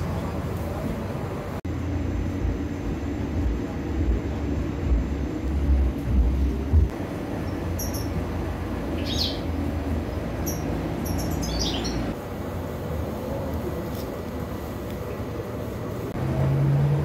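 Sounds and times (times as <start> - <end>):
steady low rumble: 0.0 - 16.2
small birds chirping: 7.4 - 8.2, 8.9 - 12.2.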